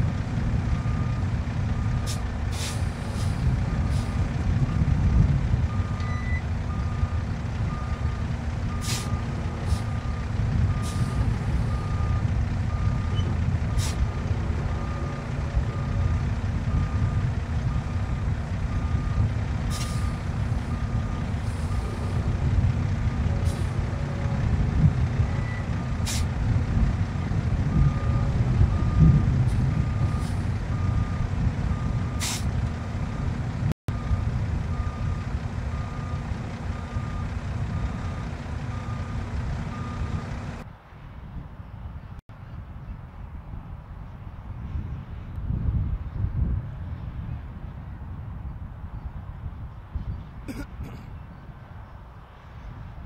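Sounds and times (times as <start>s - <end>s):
truck diesel engine rumbling: 0.0s - 42.2s, 43.9s - 53.0s
backup alarm beeping: 5.7s - 8.0s.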